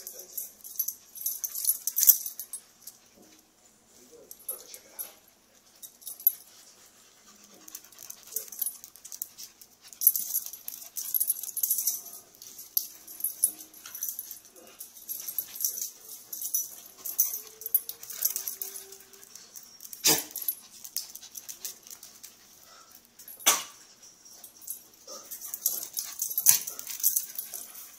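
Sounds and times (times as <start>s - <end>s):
dog paws and collars clicking: 0.0s - 3.4s, 4.2s - 27.9s
dogs whimpering: 15.8s - 20.9s.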